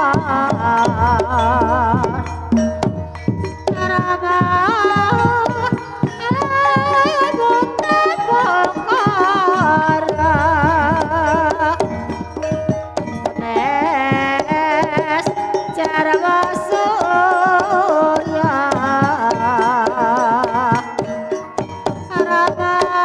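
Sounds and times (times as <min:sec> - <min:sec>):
woman singing ornamented melody: 0:00.0 - 0:21.0, 0:22.1 - 0:23.0
gamelan ensemble: 0:00.0 - 0:23.0
hand drum strokes: 0:00.0 - 0:23.0.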